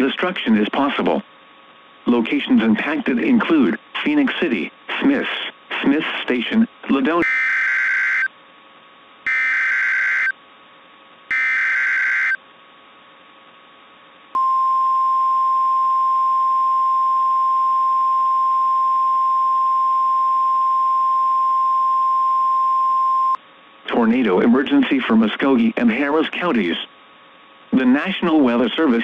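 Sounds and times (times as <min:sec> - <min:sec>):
steady warning alarm tone: 0:07.2 - 0:08.3, 0:09.3 - 0:10.4, 0:11.3 - 0:12.4.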